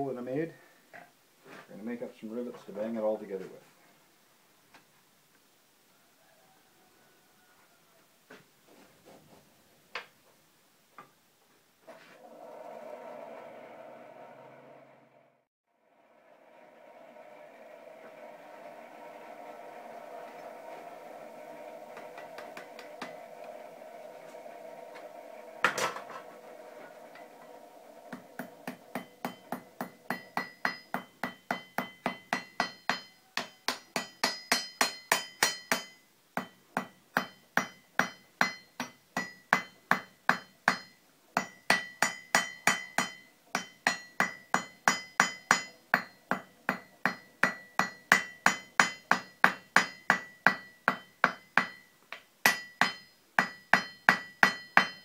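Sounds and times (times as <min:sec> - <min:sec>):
hammer ringing on anvil: 0:28.4 - 0:51.9, 0:52.5 - 0:55.0.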